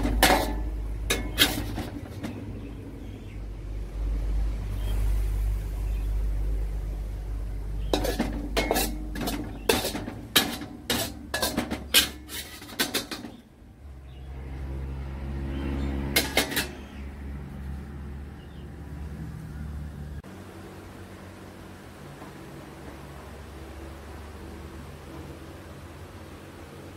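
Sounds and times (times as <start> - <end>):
metal spatula scraping a pan: 0.0 - 2.7, 7.8 - 13.5, 15.8 - 17.0
low steady hum: 0.0 - 15.6.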